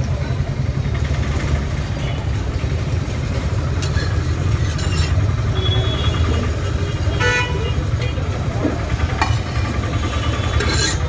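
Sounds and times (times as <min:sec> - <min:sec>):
idling road traffic rumble: 0:00.0 - 0:11.0
spatulas scraping a griddle: 0:03.8 - 0:05.2, 0:10.2 - 0:11.0.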